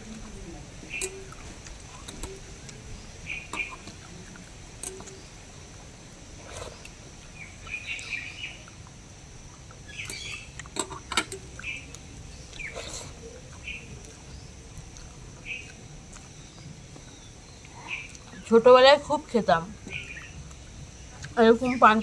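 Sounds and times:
bird chirps: 2.0 - 5.4, 9.8 - 10.6, 19.9 - 20.4
wet mouth eating sounds: 12.5 - 18.4.

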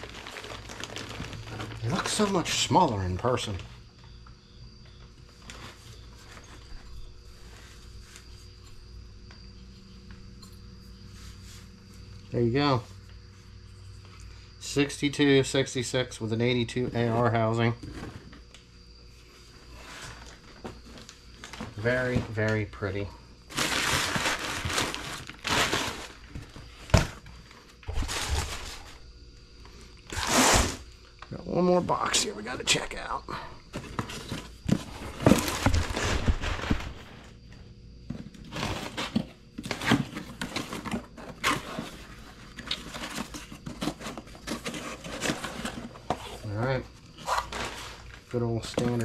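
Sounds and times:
paper and plastic bags rustling: 0.0 - 3.8, 19.7 - 29.0, 33.7 - 37.3, 38.4 - 46.6, 47.2 - 49.0
electrical hum: 0.0 - 49.0.

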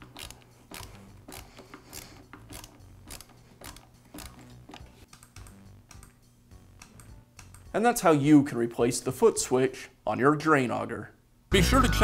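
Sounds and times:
screwdriver tightening hose clamp clicks: 0.0 - 6.1
faint background music: 0.0 - 12.0.

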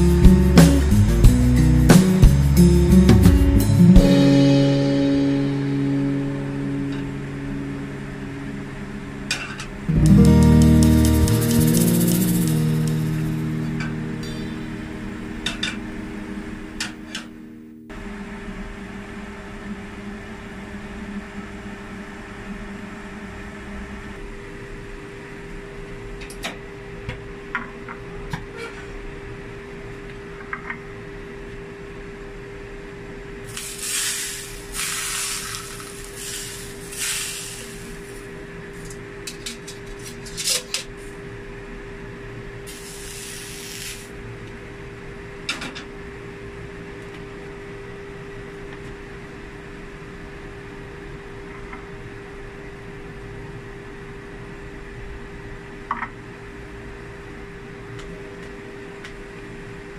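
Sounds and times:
steady hum: 0.0 - 19.2, 33.0 - 54.5
hot oil sizzling on fish: 33.5 - 38.3, 42.7 - 44.1.

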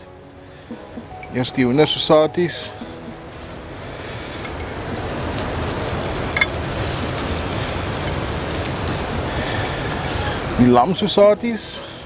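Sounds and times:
meat sizzling on a grill: 0.0 - 12.0.

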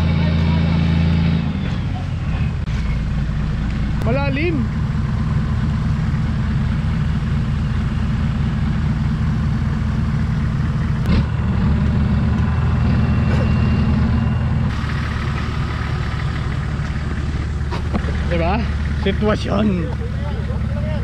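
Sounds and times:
vehicle engine droning at low revs: 0.0 - 21.0.

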